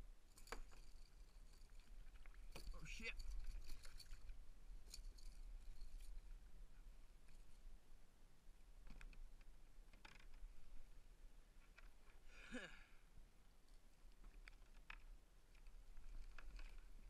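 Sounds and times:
faint clicks of gear: 0:13.6 - 0:17.0.

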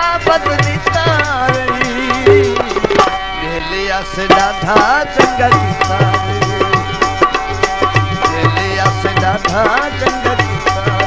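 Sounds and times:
hand drums beating: 0:00.0 - 0:03.4, 0:04.2 - 0:11.0
sliding melody: 0:00.4 - 0:11.0
held drone: 0:01.5 - 0:08.9.

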